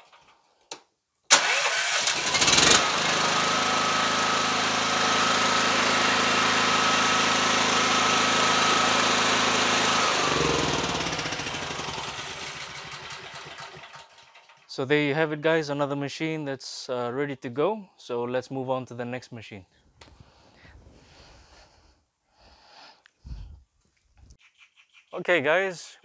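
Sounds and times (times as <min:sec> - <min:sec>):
generator engine running: 0:01.3 - 0:14.6.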